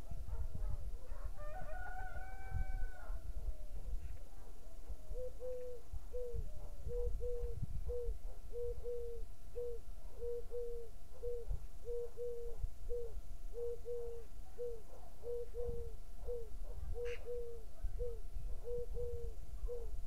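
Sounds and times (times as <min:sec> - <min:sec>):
low wind rumble: 0:00.0 - 0:04.2, 0:04.9 - 0:08.6.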